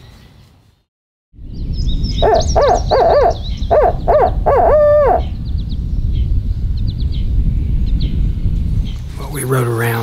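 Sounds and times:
owl hooting: 2.2s - 5.4s.

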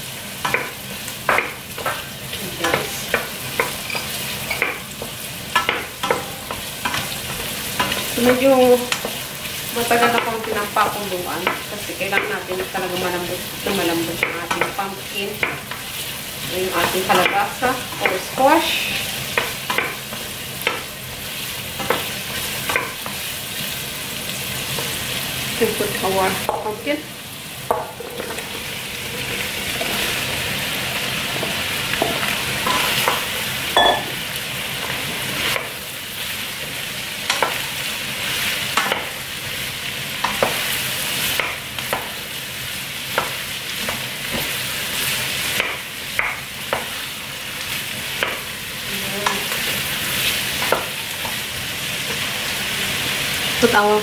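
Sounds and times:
food frying hiss: 0.0s - 54.0s
spoon knocking against pot: 33.8s - 34.2s.

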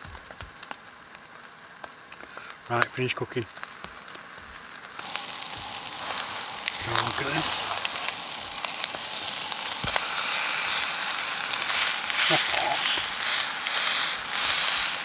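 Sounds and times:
food sizzling in frying pan: 0.0s - 15.0s
wooden spatula scraping clicks: 5.0s - 10.1s.

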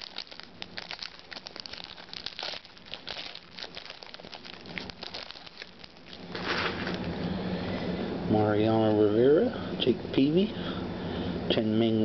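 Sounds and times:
foil wrapper crinkling: 0.0s - 7.2s.

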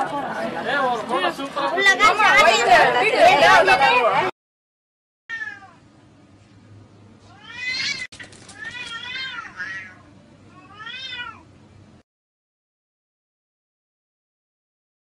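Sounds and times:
cats yowling: 5.3s - 5.8s, 7.3s - 11.5s.

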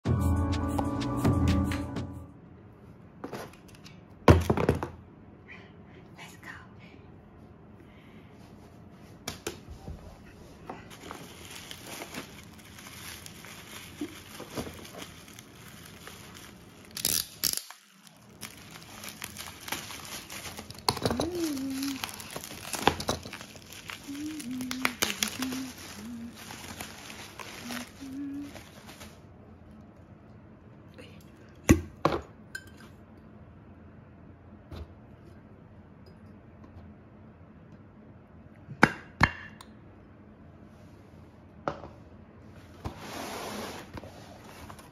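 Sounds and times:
bubble wrap crinkling: 10.8s - 29.4s
loud bubble wrap rip: 11.1s - 29.2s.

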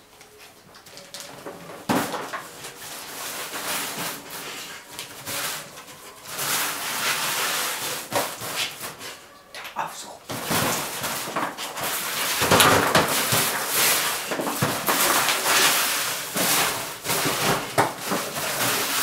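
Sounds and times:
box set down on tile floor: 1.2s - 2.7s
box scraping across tiles: 1.7s - 9.2s, 10.3s - 19.0s.

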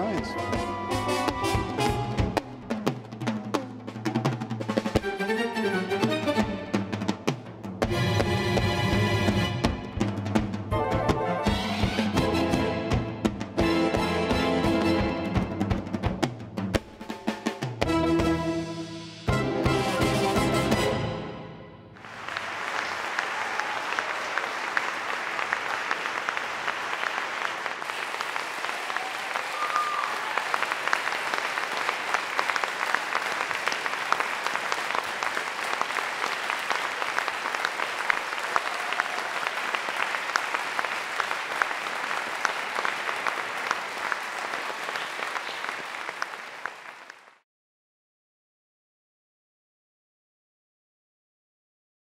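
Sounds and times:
audience applauding: 0.0s - 2.5s, 22.0s - 47.4s.

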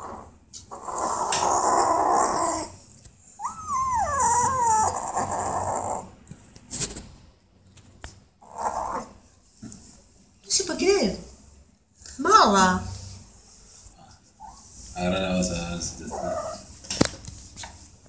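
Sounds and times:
kitten growling: 0.0s - 2.8s, 3.4s - 6.2s, 16.0s - 16.7s
kitten yowling: 3.4s - 6.1s.

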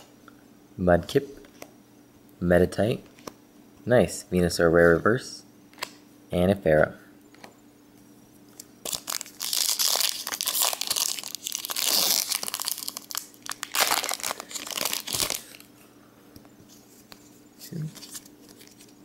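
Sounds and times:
foil wrapper tearing and crinkling: 8.8s - 15.7s.

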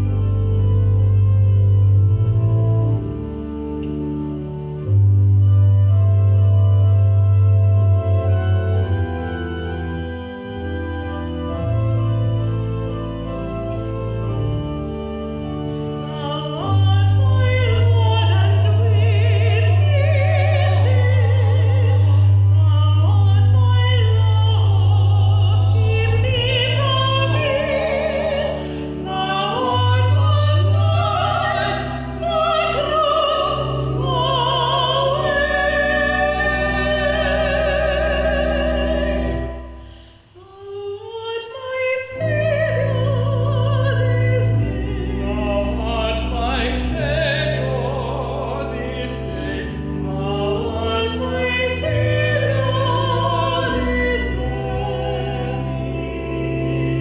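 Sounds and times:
instrumental accompaniment: 0.0s - 57.0s
person singing with vibrato: 16.1s - 57.0s.

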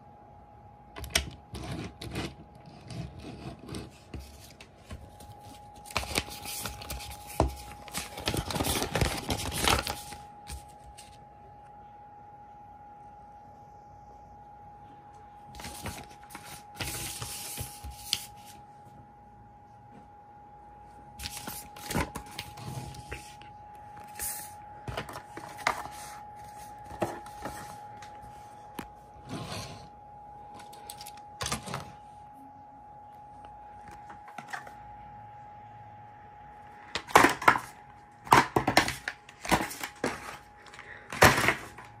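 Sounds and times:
faint steady whine: 0.0s - 42.0s
paper leaflet rustling and crinkling: 4.1s - 11.2s, 15.6s - 18.6s.

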